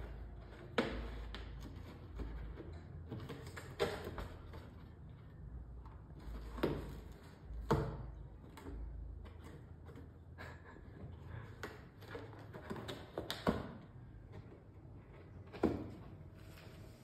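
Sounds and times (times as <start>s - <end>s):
cat claws scratching cardboard: 0.0s - 5.2s.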